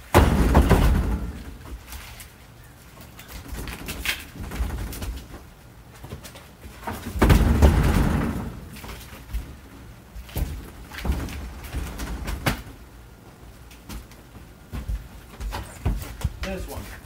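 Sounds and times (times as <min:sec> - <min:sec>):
wood knocking on trailer: 0:00.1 - 0:01.6, 0:06.8 - 0:08.7
log thumping on trailer floor: 0:00.1 - 0:01.8, 0:06.8 - 0:09.0.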